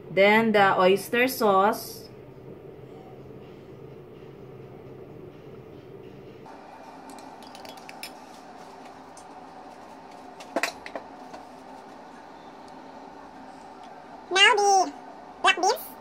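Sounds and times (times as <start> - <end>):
low room hum: 0.0 - 16.0
metal spoon clinking on ceramic mug: 7.1 - 8.3.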